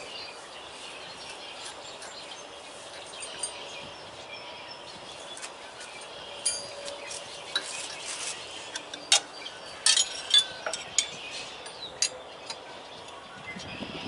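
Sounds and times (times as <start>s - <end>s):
tools clinking on metal: 6.4s - 7.8s, 8.7s - 12.7s.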